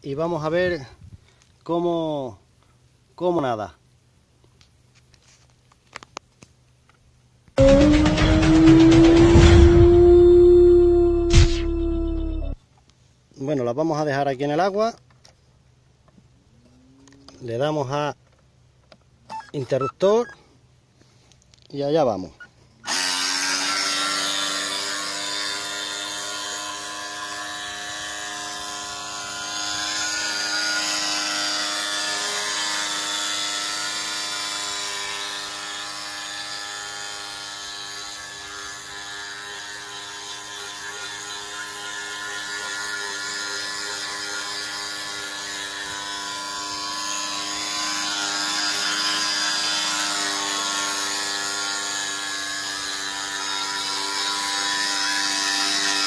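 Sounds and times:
small electric motor whine: 0:07.6 - 0:12.6, 0:22.8 - 0:56.0.

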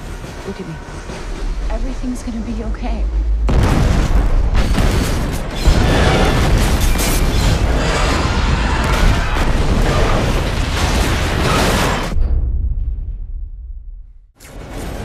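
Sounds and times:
explosion with heavy rumble: 0:03.0 - 0:15.0
rushing fire: 0:03.4 - 0:12.8.

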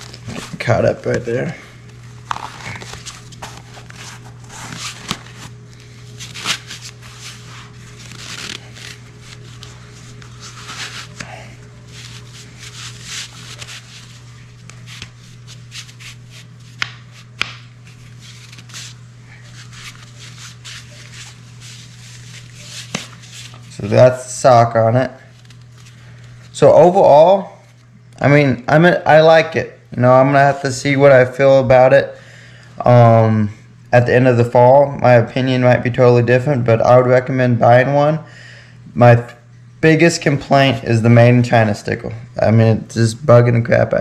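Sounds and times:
cloth rustling and rubbing: 0:02.0 - 0:24.0.

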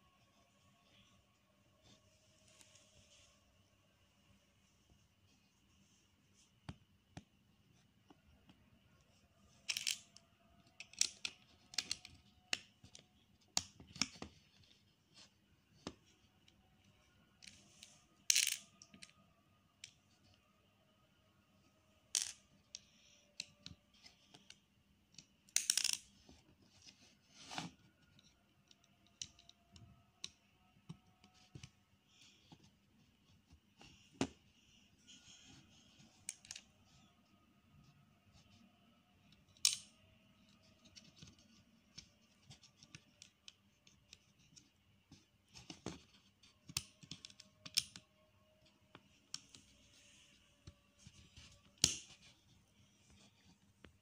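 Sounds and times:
plastic bricks clicking: 0:09.7 - 0:10.2.

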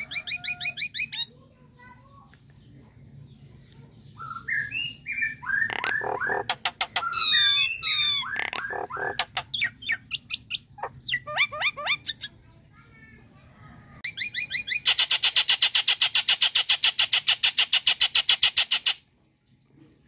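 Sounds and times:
myna bird calling: 0:00.0 - 0:01.4, 0:04.1 - 0:12.4.

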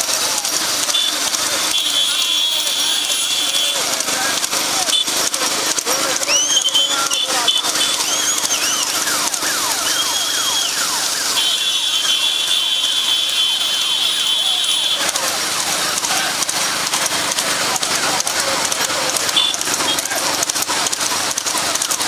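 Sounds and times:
race crowd commotion: 0:00.0 - 0:22.0
shrill high whistle tone: 0:06.3 - 0:09.1, 0:09.7 - 0:11.7.

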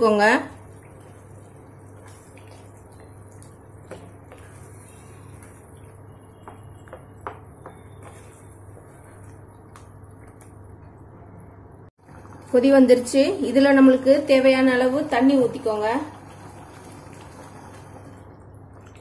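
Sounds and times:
spatula stirring potatoes in sauce: 0:00.6 - 0:11.0.

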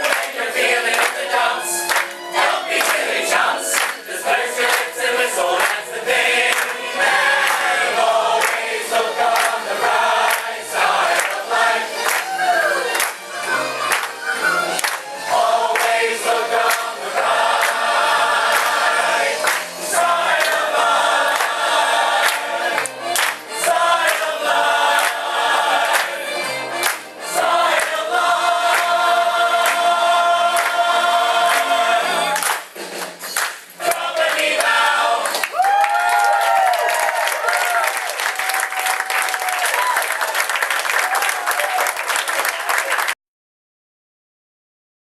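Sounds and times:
musical accompaniment with beat: 0:00.0 - 0:35.7
audience applause and cheering: 0:05.5 - 0:29.0, 0:29.6 - 0:43.2.

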